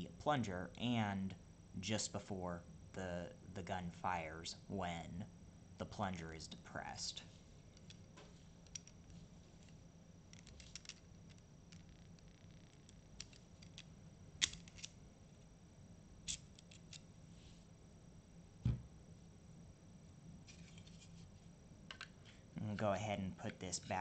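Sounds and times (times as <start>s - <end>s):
pistol parts clicking: 14.4s - 15.0s.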